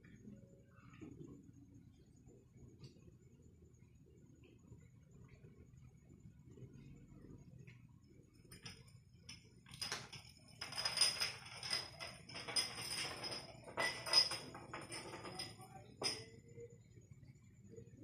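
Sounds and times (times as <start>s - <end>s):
faint high ringing of glass: 8.1s - 17.1s
glass rolling on tiled floor: 8.4s - 16.4s.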